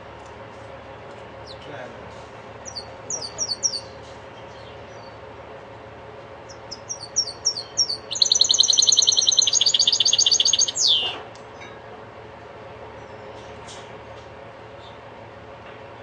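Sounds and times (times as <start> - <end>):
bird singing with trills: 2.6 - 5.2, 6.5 - 11.2.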